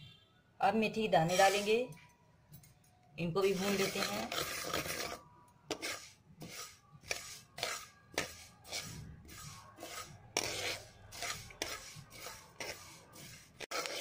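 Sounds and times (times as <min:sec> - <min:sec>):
spatula scraping seeds in a pan: 0:01.2 - 0:01.8, 0:03.4 - 0:14.0.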